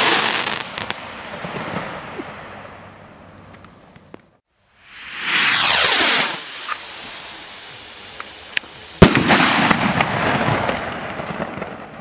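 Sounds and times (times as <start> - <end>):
crackling hiss of burning stars: 0.0 - 12.0
firework launch whoosh: 4.8 - 11.5
firework bang: 4.9 - 11.9.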